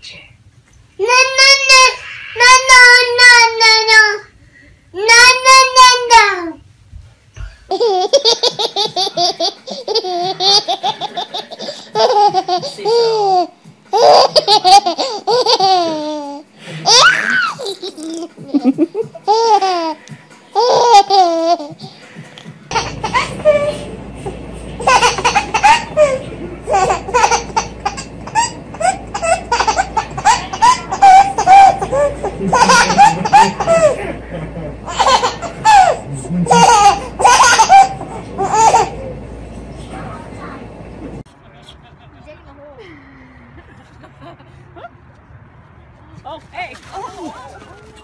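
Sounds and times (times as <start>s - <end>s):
baby laughing: 7.7s - 21.9s, 22.7s - 39.2s.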